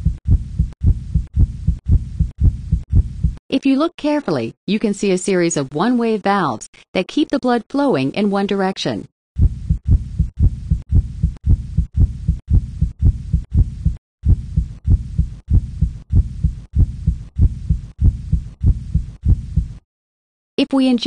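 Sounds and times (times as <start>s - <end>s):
heartbeat thumps: 0.0s - 3.4s, 9.4s - 19.8s.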